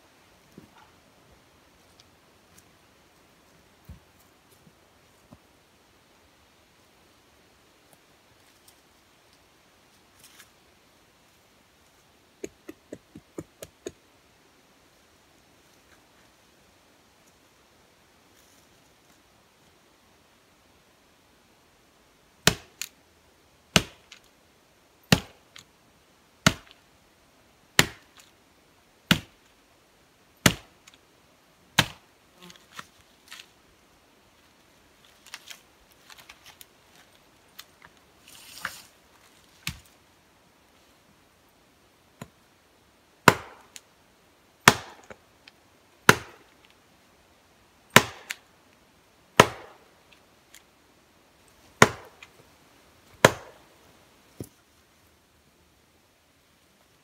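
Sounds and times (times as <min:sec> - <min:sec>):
axe chopping log: 0:22.4 - 0:22.9, 0:23.7 - 0:24.1, 0:25.1 - 0:25.4, 0:26.4 - 0:26.7, 0:27.8 - 0:28.2, 0:29.1 - 0:29.4, 0:30.4 - 0:30.8, 0:31.8 - 0:32.0, 0:43.2 - 0:43.7, 0:44.6 - 0:45.2, 0:46.0 - 0:46.4, 0:47.9 - 0:48.4, 0:49.4 - 0:49.8, 0:51.8 - 0:52.2, 0:53.2 - 0:53.6.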